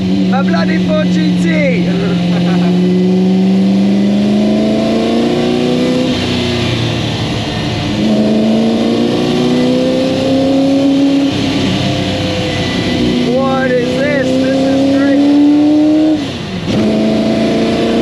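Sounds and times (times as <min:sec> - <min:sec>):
engine revving hard: 0:00.0 - 0:18.0.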